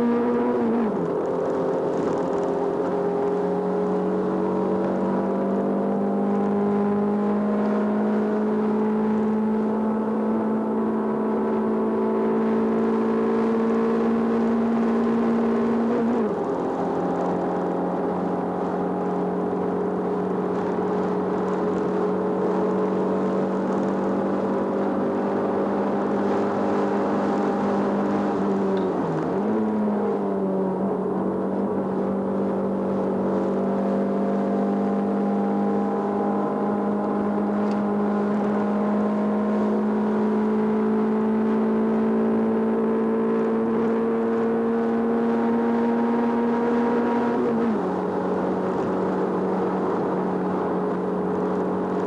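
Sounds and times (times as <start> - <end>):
car engine pulling under load: 0.0 - 9.8.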